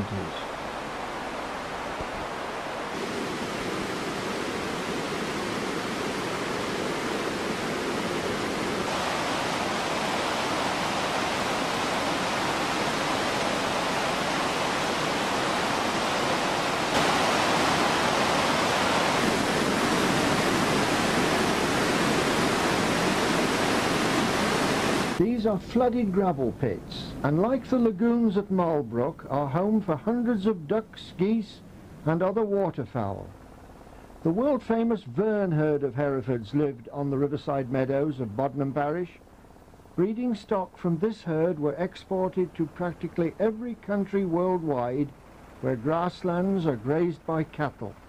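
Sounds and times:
water rushing over weir: 0.0 - 25.3.

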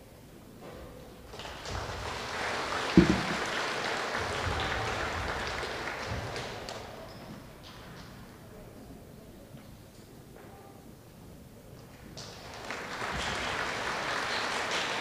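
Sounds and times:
audience clapping: 1.3 - 7.8, 12.0 - 15.0
loud low thump: 3.0 - 3.5.

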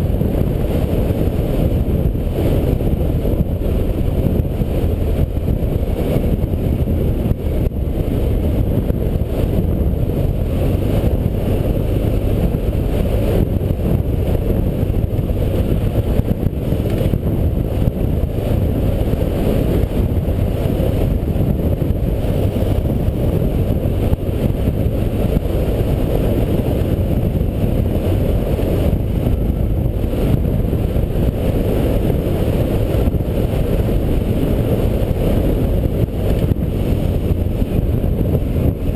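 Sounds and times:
low wind rumble on microphone: 0.0 - 38.9
off-road vehicle engine: 0.0 - 38.9.

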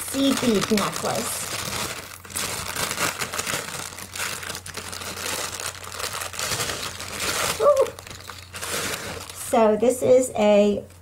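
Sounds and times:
plastic packaging crinkling: 0.0 - 9.7
woman vocal sound: 7.6 - 8.0.

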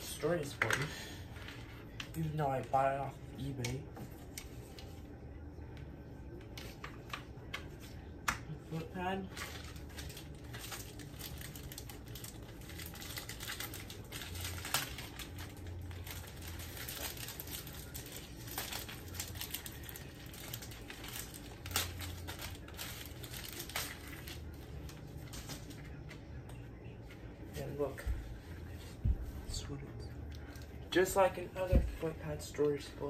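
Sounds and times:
plastic packaging crinkling: 8.8 - 26.1.

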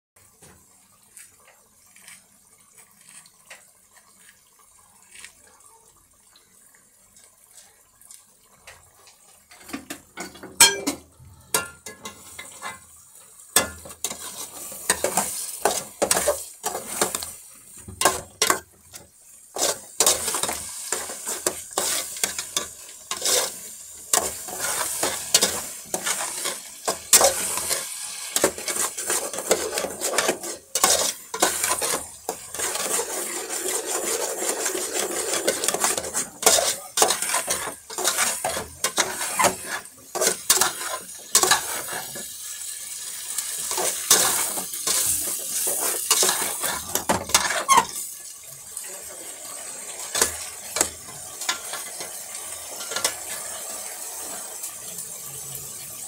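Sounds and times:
meat sizzling in a pan: 8.6 - 56.0
metal utensil scraping a pan: 9.5 - 48.2, 49.3 - 54.5
utensil clinking against pan: 9.6 - 11.0.

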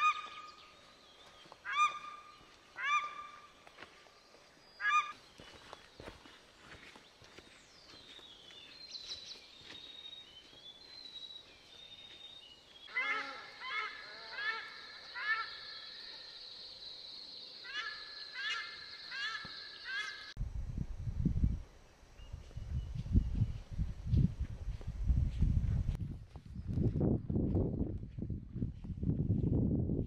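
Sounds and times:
bird honk-like calls: 1.7 - 3.5, 4.8 - 5.2.

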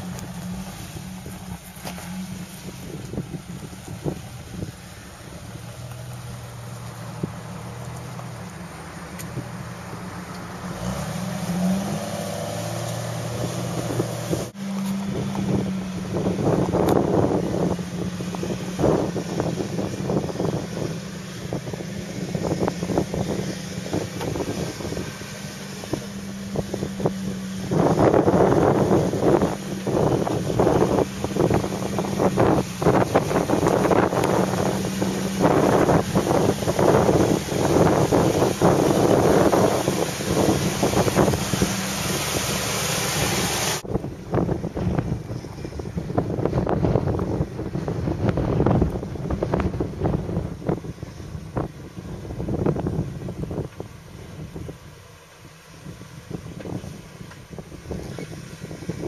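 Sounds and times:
car engine running at low revs: 0.0 - 59.0
wind buffeting microphone: 0.0 - 59.0.

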